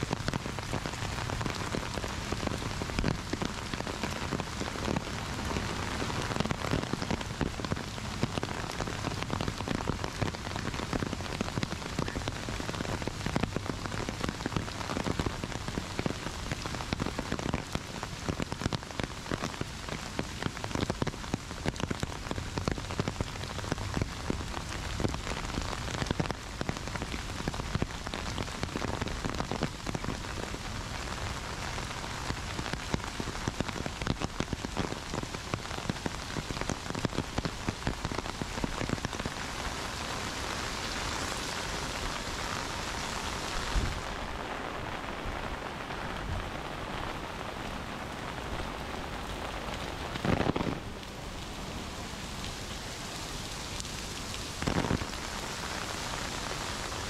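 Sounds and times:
heavy rain: 0.0s - 57.0s.

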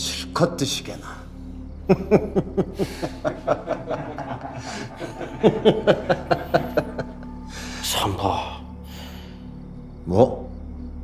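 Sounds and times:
man chuckling: 1.9s - 7.3s.

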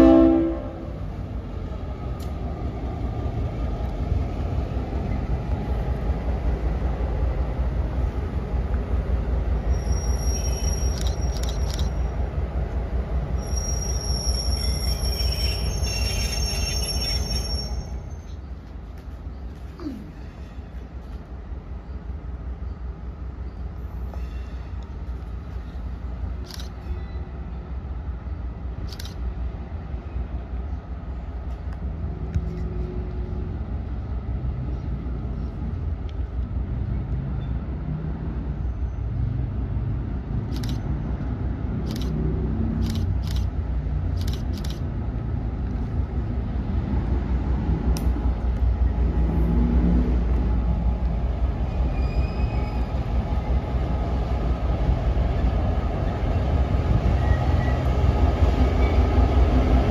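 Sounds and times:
diesel train rumbling: 0.0s - 59.9s
camera shutter clicks: 10.9s - 12.0s, 40.5s - 40.8s, 41.8s - 42.2s, 42.8s - 44.9s.

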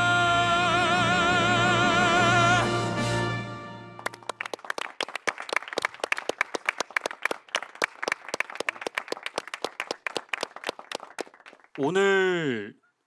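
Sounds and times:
music: 0.0s - 4.2s
small group applauding: 4.0s - 12.0s.

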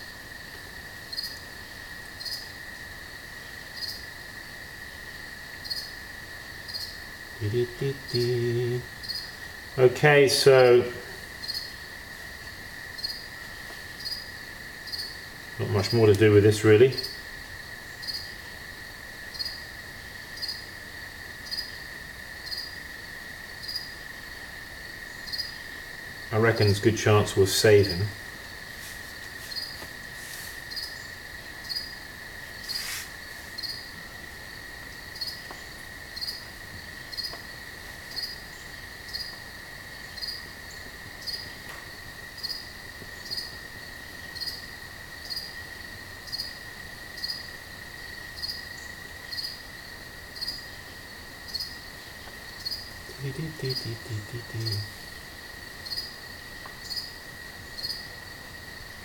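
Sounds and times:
cricket chirping: 0.0s - 59.0s
constant high tone: 7.4s - 11.7s, 15.6s - 17.2s, 26.3s - 28.2s, 53.1s - 55.1s.

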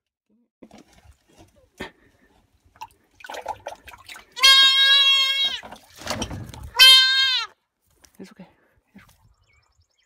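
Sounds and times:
fawn bleating: 4.3s - 5.6s, 6.7s - 7.6s.

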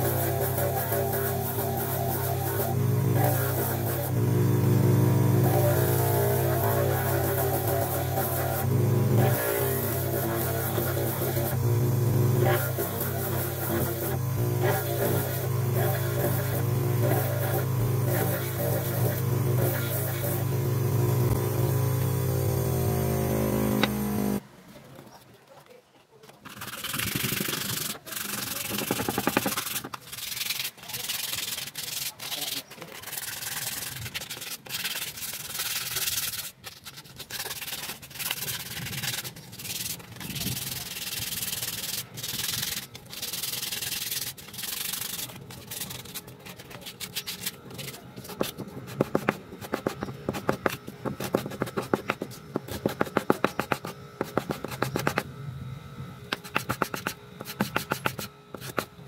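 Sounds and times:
sandpaper rubbing on wood: 0.0s - 4.2s, 5.4s - 11.6s, 12.3s - 20.6s, 26.4s - 55.2s, 56.4s - 58.9s.

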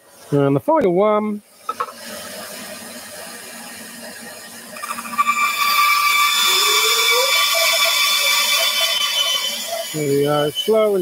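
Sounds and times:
bandsaw blade cutting wood: 4.8s - 11.0s
bandsaw running: 4.8s - 11.0s.

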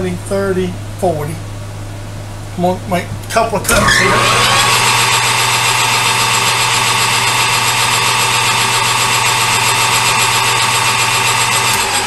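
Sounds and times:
lathe motor hum: 3.9s - 12.0s.

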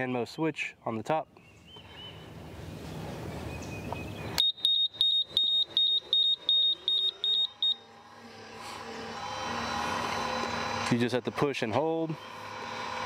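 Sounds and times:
gate motor humming: 5.0s - 13.0s.

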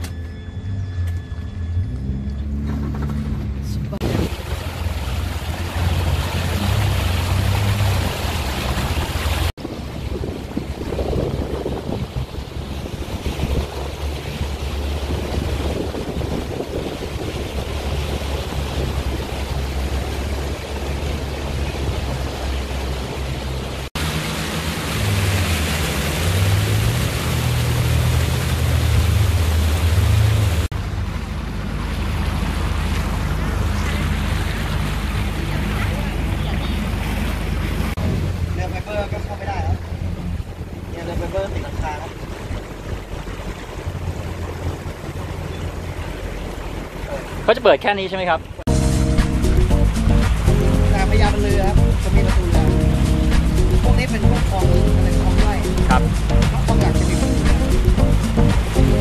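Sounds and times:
boat engine running: 0.0s - 59.0s
water rushing along hull: 0.0s - 59.0s
wind on microphone: 5.9s - 22.4s.

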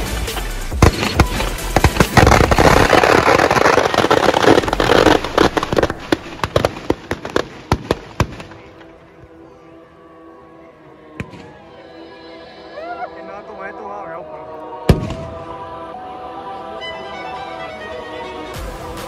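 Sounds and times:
firecrackers banging: 0.0s - 8.9s.

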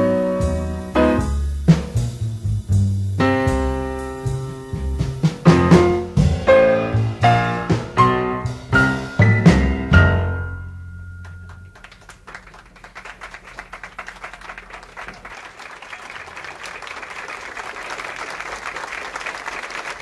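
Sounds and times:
jazz piano trio chord: 0.0s - 12.1s
low bass note ringing: 10.0s - 11.8s
audience applause: 11.2s - 20.0s.

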